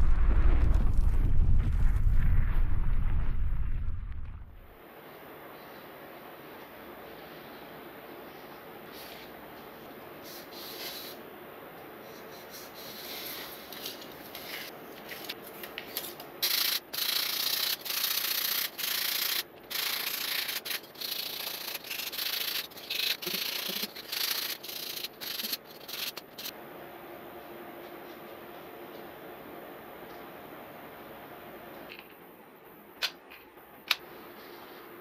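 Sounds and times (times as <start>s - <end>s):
sanding foam back and forth: 16.5s - 26.5s.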